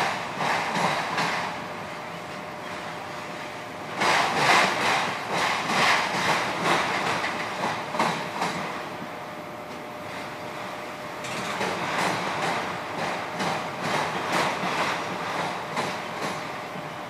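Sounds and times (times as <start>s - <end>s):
train wheels clattering on rails: 0.0s - 17.0s
loud clanks and rattles: 11.2s - 16.4s.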